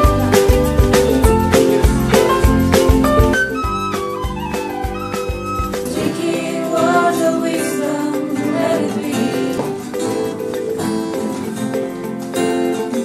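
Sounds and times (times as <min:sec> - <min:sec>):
acoustic guitar: 0:00.0 - 0:13.0
young voices singing: 0:05.8 - 0:10.3.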